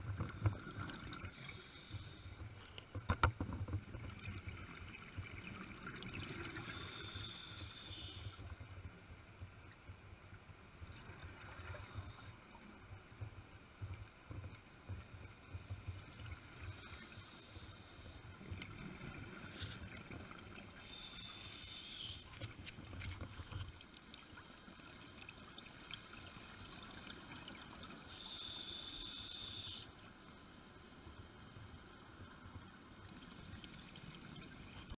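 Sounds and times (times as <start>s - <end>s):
diver breathing through regulator: 6.6s - 8.4s, 20.8s - 22.3s, 28.1s - 29.9s.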